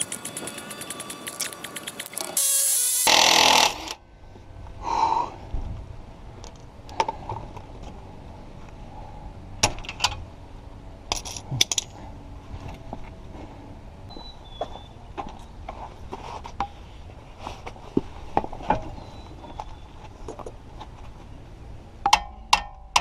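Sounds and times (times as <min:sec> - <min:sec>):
metallic clinks of wrenches: 0:11.1 - 0:12.0.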